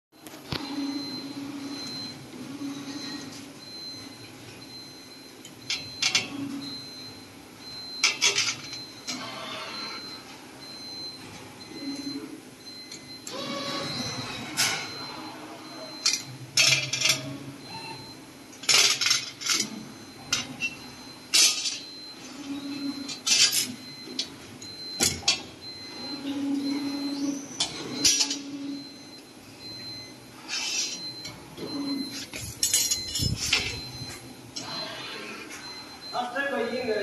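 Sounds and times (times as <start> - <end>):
metallic clanks and clinks: 32.6 - 33.8.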